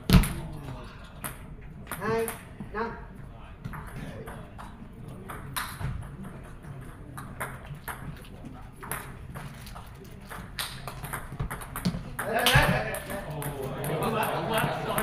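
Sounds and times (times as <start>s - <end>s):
table tennis ball bouncing: 0.1s - 0.4s, 3.6s - 14.2s
murmur of voices: 12.2s - 15.0s.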